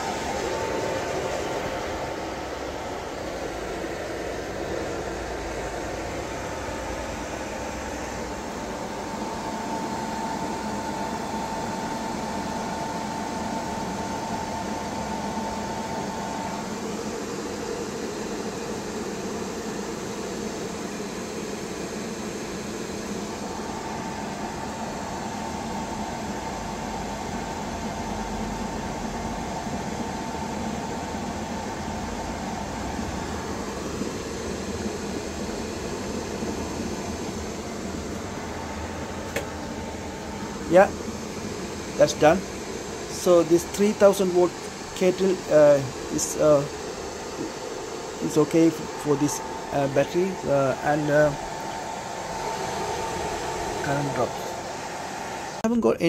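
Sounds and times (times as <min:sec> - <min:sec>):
electric kettle heating water: 0:00.0 - 0:55.8
steady high tone: 0:20.6 - 0:56.0.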